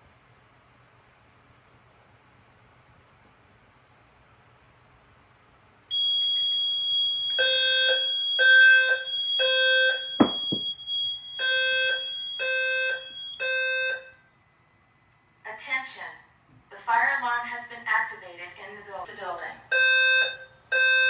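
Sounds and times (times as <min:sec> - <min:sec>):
low buzzy evacuation beeps: 0:05.9 - 0:15.9, 0:19.7 - 0:21.0
steady high-pitched tone: 0:10.2 - 0:10.7
sharp thumps: 0:10.2 - 0:10.8.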